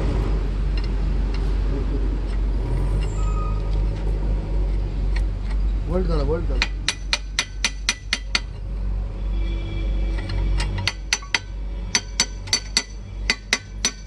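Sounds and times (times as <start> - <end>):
hammer striking steel: 6.6 - 8.5, 10.2 - 14.0.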